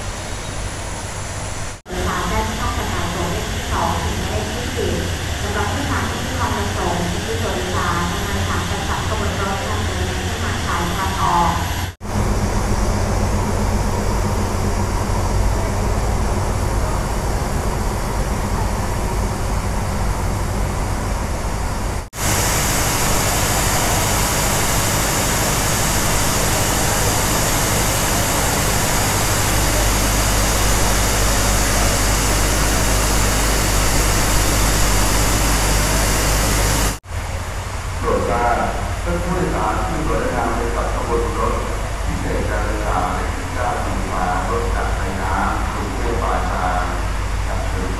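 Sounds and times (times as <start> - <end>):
low hum: 0.0 - 47.9
steam hissing: 22.2 - 37.0.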